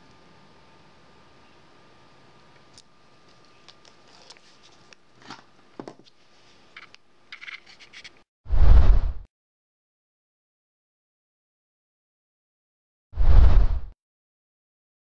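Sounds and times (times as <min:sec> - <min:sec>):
faint steady hum: 0:00.0 - 0:08.1
test probes clicking and scratching: 0:06.7 - 0:08.2
short rush of noise: 0:08.5 - 0:09.3, 0:13.2 - 0:14.0.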